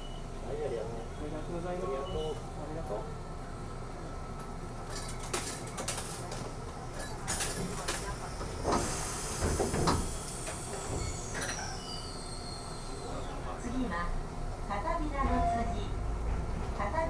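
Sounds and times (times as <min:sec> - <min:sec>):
tram running on rails: 0:00.0 - 0:17.0
hiss: 0:08.6 - 0:13.3.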